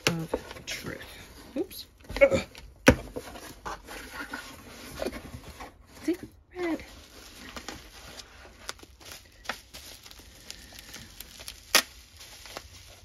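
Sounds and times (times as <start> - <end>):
bubble wrap crinkling: 6.0 - 13.0
bubble wrap snap: 9.9 - 12.7.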